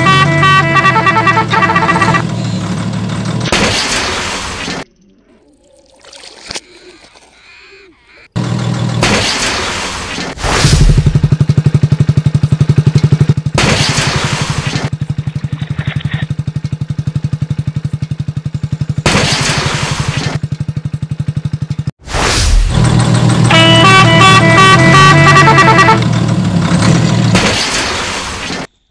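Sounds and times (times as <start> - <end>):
small engine chugging: 2.2 - 3.4, 14.9 - 19.0.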